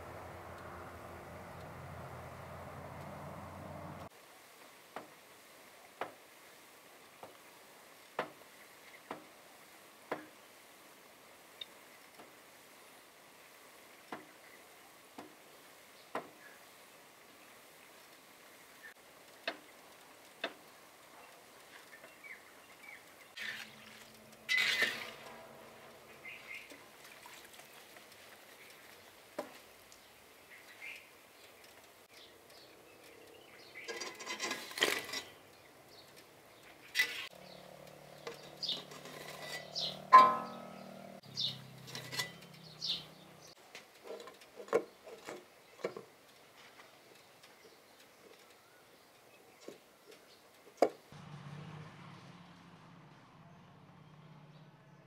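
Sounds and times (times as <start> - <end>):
metal skimmer clinking on pots: 33.8 - 35.4, 38.2 - 43.0.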